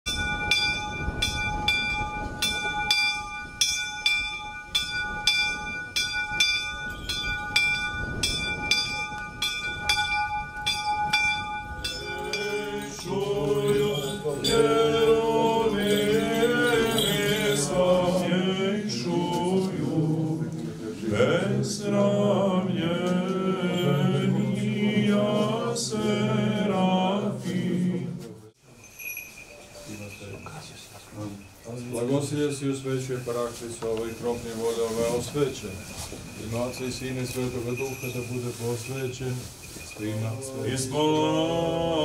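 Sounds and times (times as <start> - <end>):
church bell ringing: 0.1 - 18.3, 34.1 - 41.0
male voices chanting: 11.9 - 28.4, 40.0 - 42.0.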